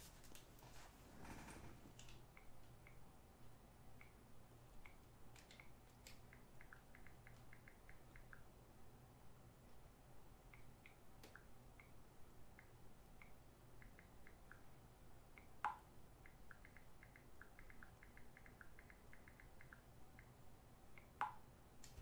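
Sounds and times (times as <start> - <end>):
faint light ticks: 4.8 - 8.5, 15.4 - 20.3.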